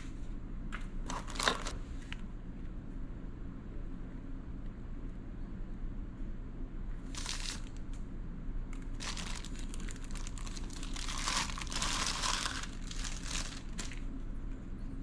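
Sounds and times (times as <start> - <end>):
plastic bag crinkling: 1.1 - 1.8, 7.1 - 7.8, 8.8 - 14.1.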